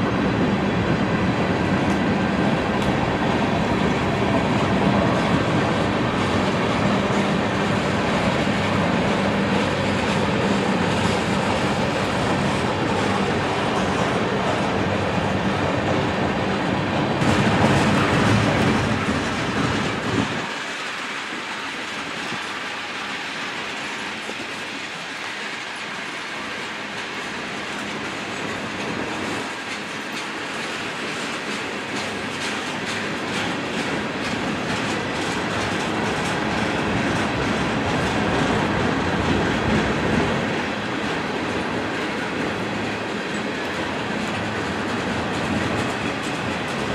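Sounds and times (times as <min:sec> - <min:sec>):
freight train rolling past: 0:00.0 - 0:46.9
wheels clacking over rail joints: 0:00.0 - 0:46.9.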